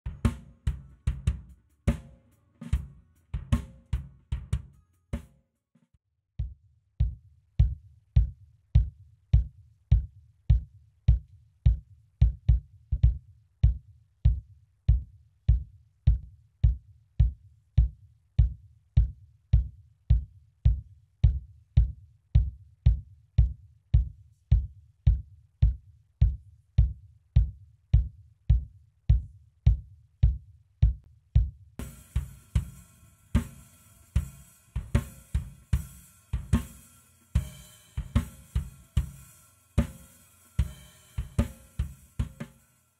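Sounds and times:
snare drum: 0.0s - 5.3s, 31.8s - 42.6s
gated kick drum: 0.0s - 5.4s, 6.4s - 42.7s
cymbals: 31.8s - 42.9s
hi-hat: 31.8s - 42.9s.

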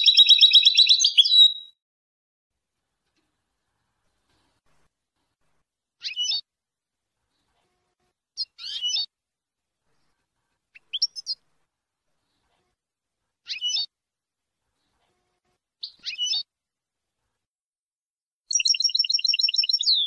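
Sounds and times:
goldfinch twittering song: 0.0s - 1.8s, 18.5s - 20.0s.

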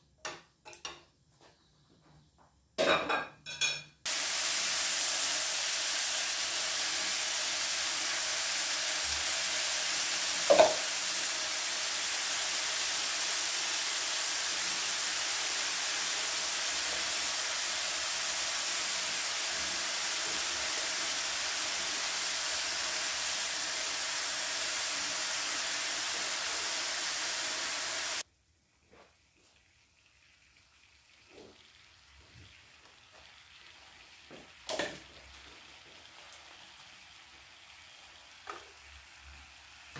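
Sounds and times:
steak sizzling on grill pan: 4.1s - 28.2s.

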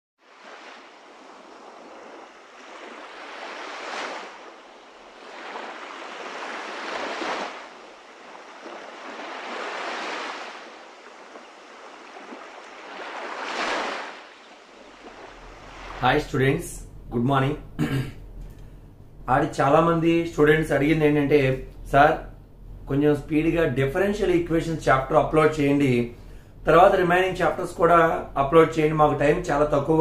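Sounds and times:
waves washing in: 0.2s - 16.4s.

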